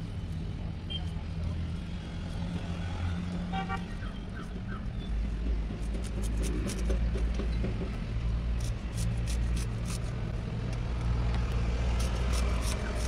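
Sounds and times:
crisp blade cutting strokes: 0:05.8 - 0:07.0, 0:08.5 - 0:10.3, 0:11.9 - 0:13.0.

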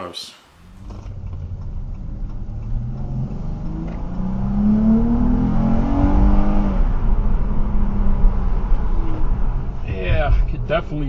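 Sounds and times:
car engine accelerating: 0:00.5 - 0:11.0.

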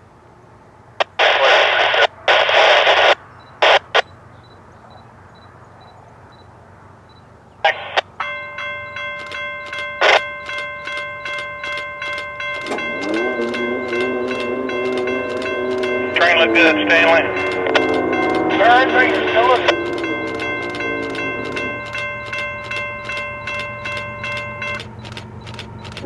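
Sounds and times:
radio static squelch bursts: 0:01.0 - 0:04.2, 0:07.6 - 0:08.1, 0:16.2 - 0:17.9, 0:18.6 - 0:20.1
ringing tones clicking: 0:08.0 - 0:26.0.

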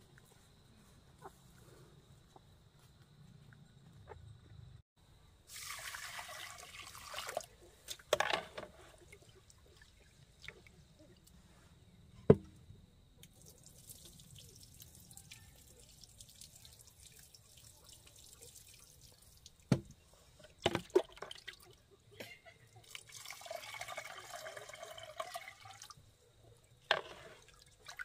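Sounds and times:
water trickling and swishing: 0:05.4 - 0:11.5, 0:13.2 - 0:22.0, 0:26.8 - 0:28.0
water pouring into pot: 0:05.5 - 0:07.6, 0:22.9 - 0:26.0.

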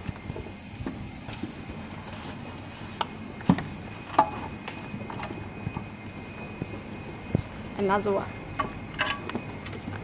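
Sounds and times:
steady hum with high tone: 0:00.0 - 0:10.0.

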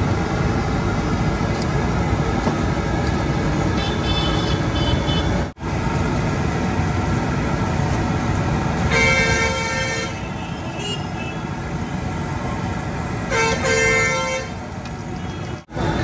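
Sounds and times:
busy street traffic: 0:00.0 - 0:16.0
vehicle horn honking: 0:03.8 - 0:05.4, 0:08.9 - 0:11.4, 0:13.3 - 0:14.5.

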